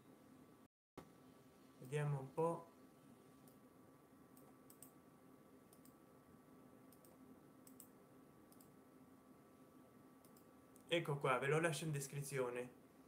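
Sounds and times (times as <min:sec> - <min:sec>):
faint steady hum: 0:00.0 - 0:13.0
computer keyboard or mouse clicks: 0:04.4 - 0:05.0, 0:06.9 - 0:07.9.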